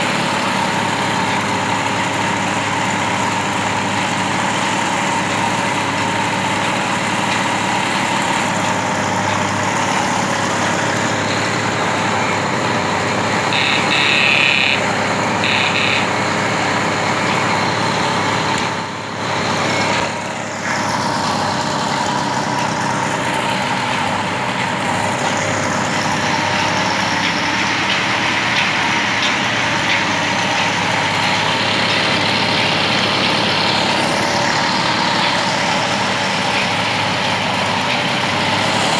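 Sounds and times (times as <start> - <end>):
moped engine idling: 0.0 - 38.9
short high-pitched tone: 13.5 - 16.3.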